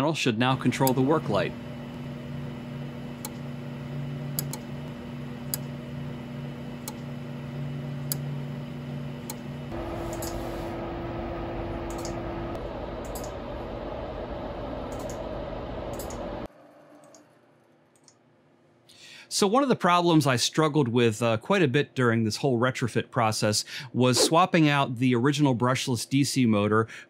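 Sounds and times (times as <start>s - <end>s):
electrical hum: 0.3s - 16.5s
relay clicking: 0.6s - 2.1s, 3.0s - 3.6s, 4.2s - 5.8s, 9.2s - 10.8s, 11.8s - 13.4s, 14.8s - 15.3s, 15.9s - 16.3s.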